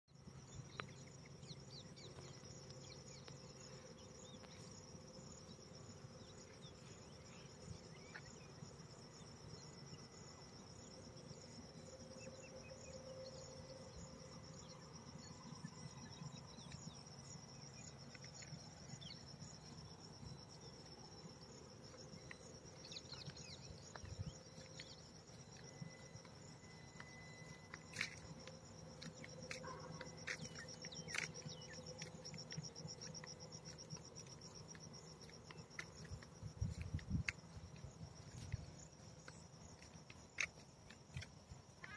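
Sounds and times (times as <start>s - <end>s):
insects chirring: 0.2s - 41.9s.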